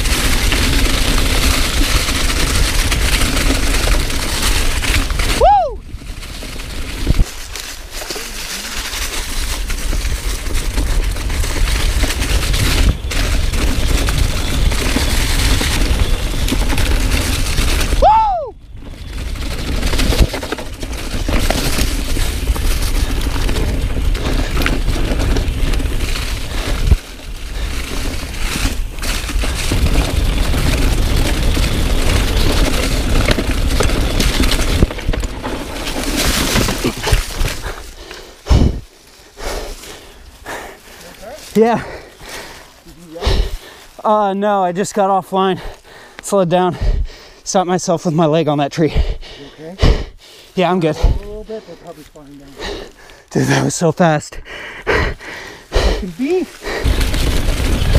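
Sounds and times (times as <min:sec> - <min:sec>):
bike rattling: 0:00.0 - 0:57.9
wind buffeting microphone: 0:09.2 - 0:44.0, 0:54.9 - 0:57.9
tyres clattering over rocks: 0:19.1 - 0:40.2.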